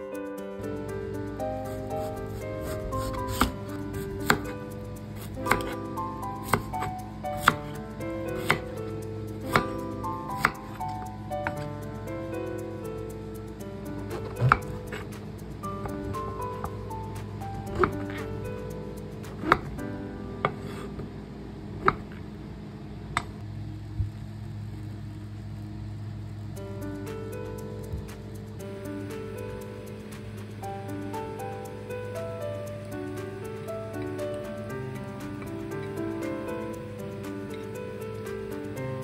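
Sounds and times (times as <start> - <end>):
soft background music: 0.0 - 39.0.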